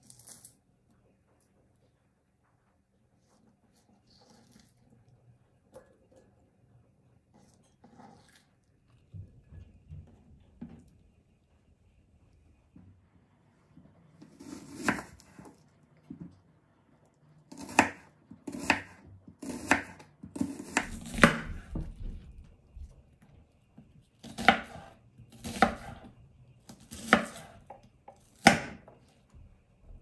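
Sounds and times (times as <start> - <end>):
knife slicing onion on board: 14.2 - 15.6, 17.5 - 21.7, 24.2 - 26.0, 26.7 - 27.6, 28.2 - 28.9.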